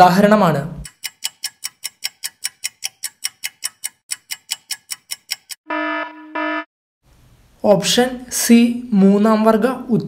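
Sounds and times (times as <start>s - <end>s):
countdown timer ticking: 0.8s - 6.7s
buzzer tone: 5.6s - 6.7s.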